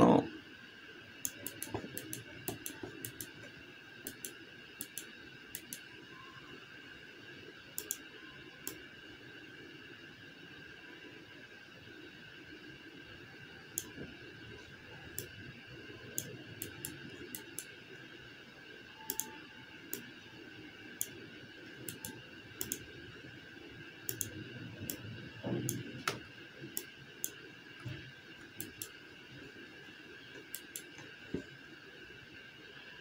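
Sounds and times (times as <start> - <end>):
faint steady hum: 0.0 - 33.0
computer mouse clicking: 1.2 - 5.9, 7.8 - 8.8, 13.7 - 14.0, 15.1 - 15.4, 16.1 - 17.7, 19.0 - 20.1, 21.0 - 21.2, 21.8 - 22.9, 24.1 - 27.4, 28.4 - 29.0, 30.3 - 31.1.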